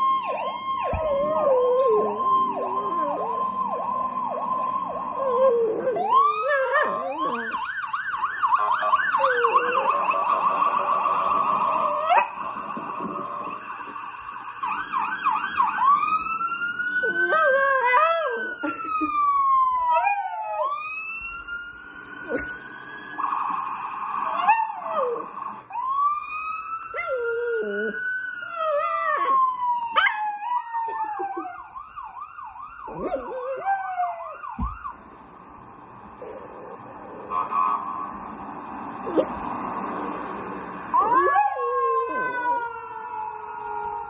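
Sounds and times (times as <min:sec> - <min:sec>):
emergency siren wailing: 0:00.0 - 0:44.0
dog howling: 0:00.9 - 0:03.5, 0:05.2 - 0:07.6, 0:32.9 - 0:34.4, 0:41.0 - 0:44.0.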